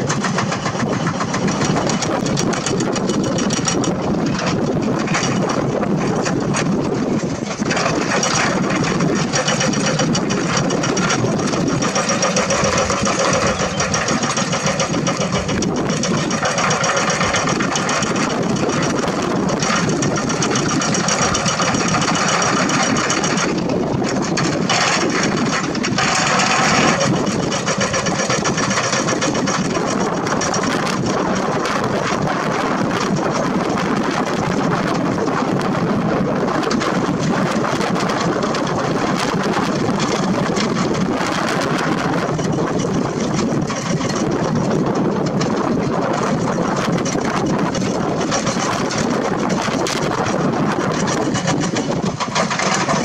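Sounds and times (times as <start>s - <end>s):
excavator diesel engine running: 0.0s - 53.0s
excavator digging rock and dirt: 0.0s - 53.0s.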